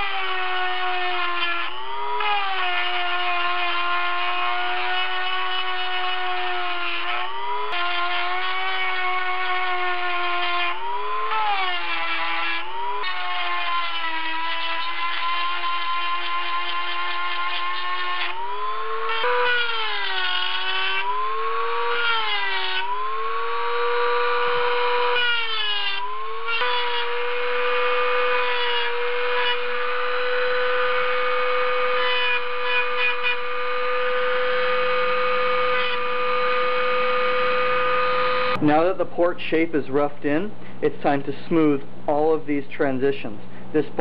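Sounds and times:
rotary tool grinding metal: 0.0 - 38.6.

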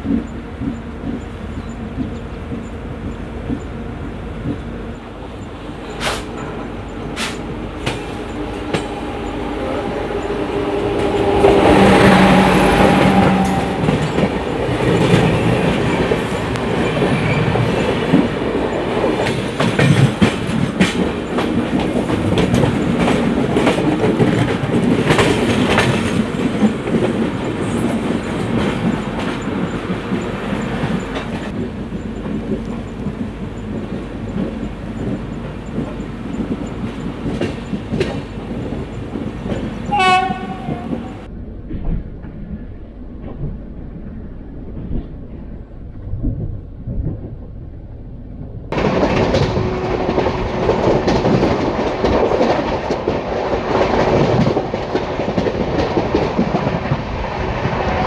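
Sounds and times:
wheels clacking over rail joints: 0.0 - 42.0, 48.7 - 58.0
train coaches rushing past: 0.0 - 42.3, 48.7 - 58.0
locomotive passing: 0.0 - 58.0.

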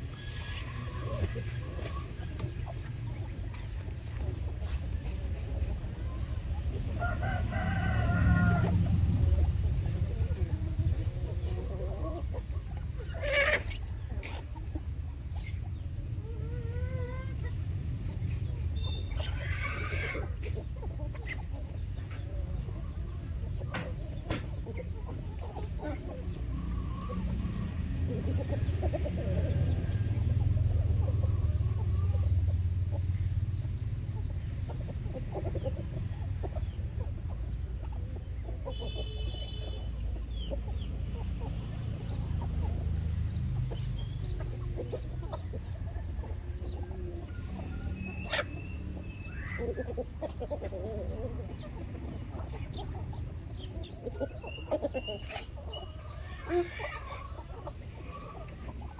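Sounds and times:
chickens clucking: 0.0 - 58.9
high repeated chirping call: 3.6 - 8.3, 11.7 - 16.0, 18.7 - 23.3, 25.0 - 29.9, 33.3 - 39.8, 42.1 - 49.6, 53.4 - 58.9.

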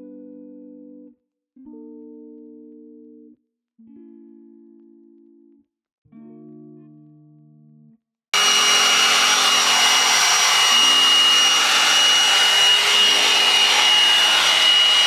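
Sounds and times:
blow-dry brush air rush and whine: 8.4 - 15.0.

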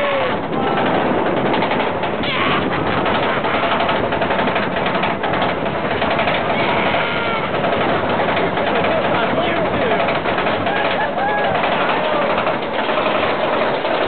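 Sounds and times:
roller coaster chain lift clatter: 0.0 - 14.0.

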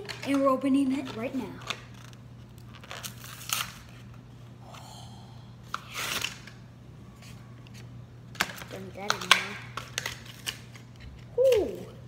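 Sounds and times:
plastic crinkling: 1.0 - 4.2
cardboard ripping: 2.7 - 4.0.

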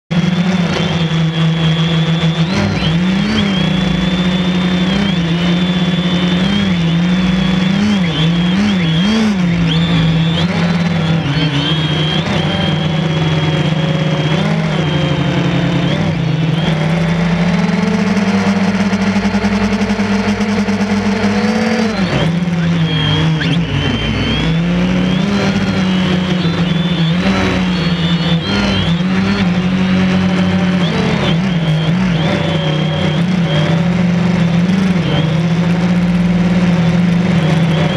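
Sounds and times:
drone propellers buzzing: 0.1 - 37.9.

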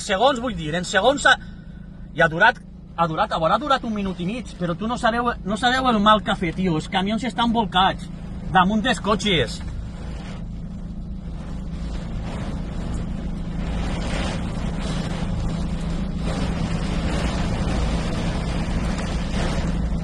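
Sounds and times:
rain buffeting truck cab: 0.0 - 20.0
truck engine idling: 0.0 - 20.0
storm wind gusts: 9.8 - 20.0.

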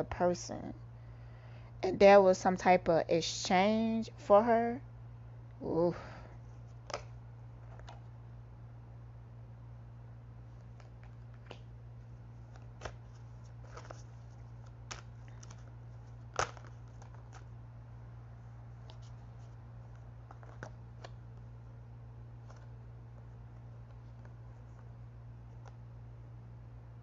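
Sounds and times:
low steady hum: 0.0 - 27.0
cards tapping and flicking: 6.8 - 8.0, 10.6 - 11.8, 12.4 - 17.5, 18.8 - 21.5, 25.5 - 25.8.

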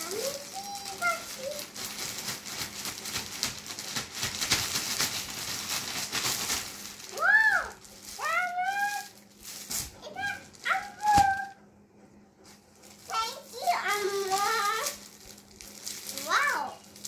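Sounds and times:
child exclaiming: 0.0 - 1.8, 7.1 - 9.2, 10.0 - 11.6, 13.1 - 15.0, 16.2 - 16.8
plastic mailer bag crinkling: 0.0 - 11.5, 12.5 - 17.0.

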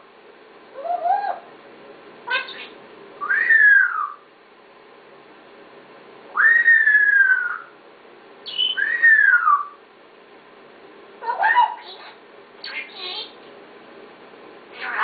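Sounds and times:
parrot whistling: 0.8 - 1.5, 2.3 - 4.3, 6.4 - 7.8, 8.4 - 9.8.

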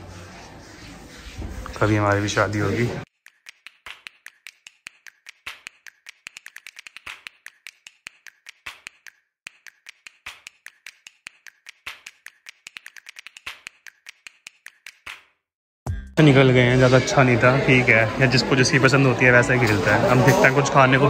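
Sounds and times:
rapid irregular clicking: 3.1 - 15.3.

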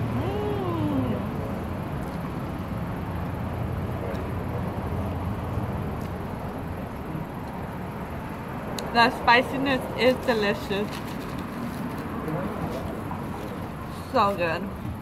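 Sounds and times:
person humming: 0.0 - 1.4
traffic rumble: 0.0 - 15.0.

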